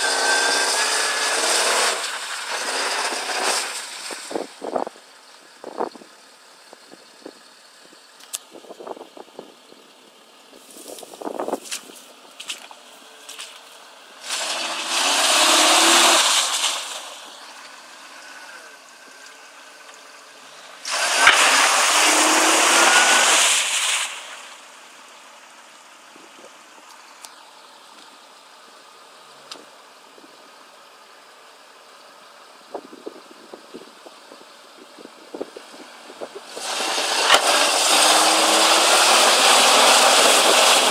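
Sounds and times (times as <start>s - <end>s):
engine revving: 0.0s - 4.9s, 11.0s - 24.8s, 35.3s - 40.9s
wheels spinning in mud: 0.0s - 5.0s, 10.5s - 27.8s, 35.0s - 40.9s
engine idling: 0.0s - 40.9s.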